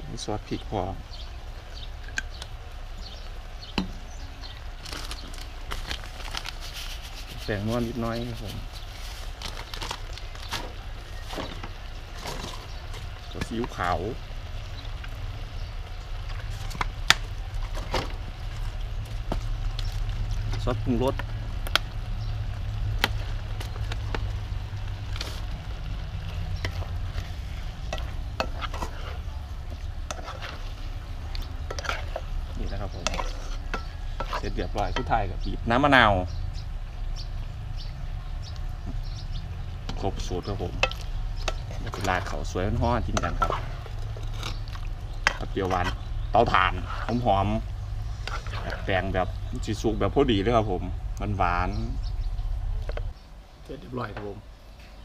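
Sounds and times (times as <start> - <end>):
steady low hum: 0.0 - 55.0
food sizzling in a wok: 1.0 - 4.9, 10.0 - 44.3
small crackles and ticks: 4.4 - 35.0, 37.2 - 46.3.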